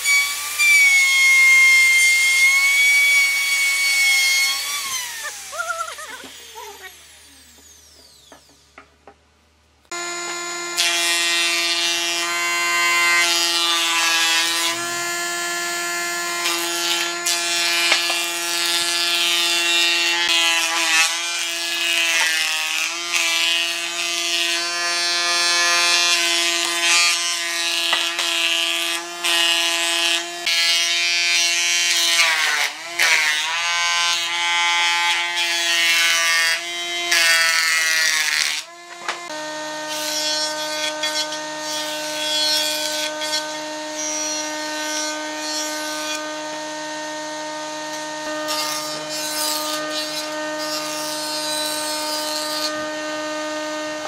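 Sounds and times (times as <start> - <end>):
power tool motor whining: 0.0 - 8.8, 9.9 - 30.7, 34.2 - 54.0.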